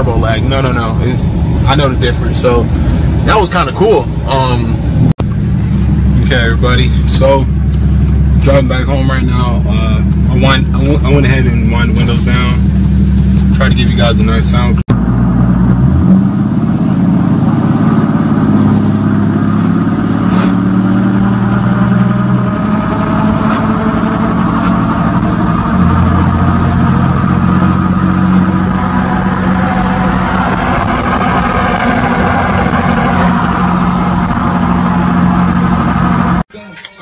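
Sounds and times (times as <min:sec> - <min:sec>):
diesel engine droning: 0:00.0 - 0:37.0
road noise: 0:00.0 - 0:37.0
wind noise: 0:15.0 - 0:36.4.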